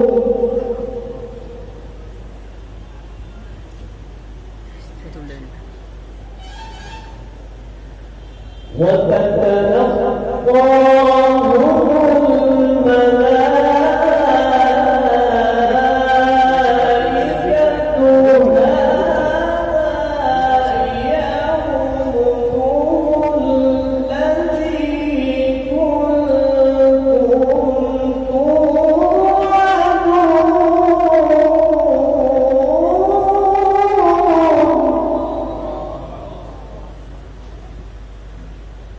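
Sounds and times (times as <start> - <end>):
man reciting melodically into microphone: 0.0 - 1.2, 8.7 - 37.0.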